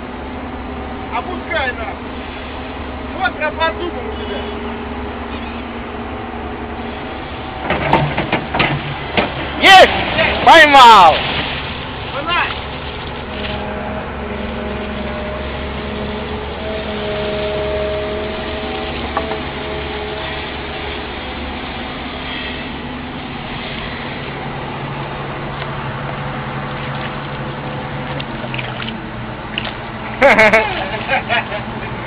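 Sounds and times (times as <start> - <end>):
excavator engine running: 0.0 - 32.0
whining tone: 13.0 - 25.8.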